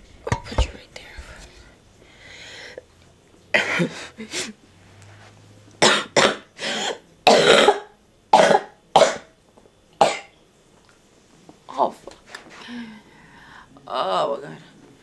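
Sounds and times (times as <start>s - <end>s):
woman coughing: 3.5s - 4.1s, 5.8s - 9.3s, 10.0s - 10.3s.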